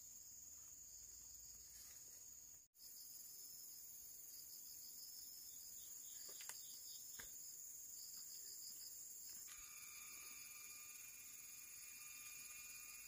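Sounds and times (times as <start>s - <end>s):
insect chorus trilling: 0.0s - 13.0s
faint steady hum: 7.6s - 13.0s.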